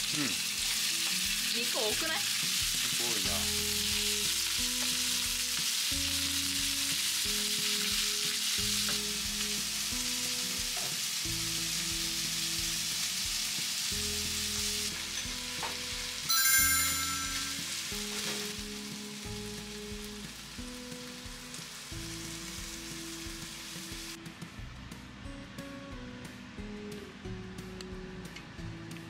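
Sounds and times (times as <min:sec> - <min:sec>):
chicken sizzling in frying pan: 0:00.0 - 0:24.2.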